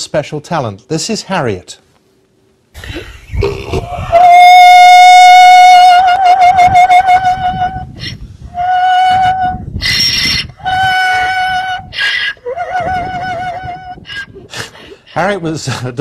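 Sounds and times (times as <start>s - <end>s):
donkey braying: 2.8s - 15.4s.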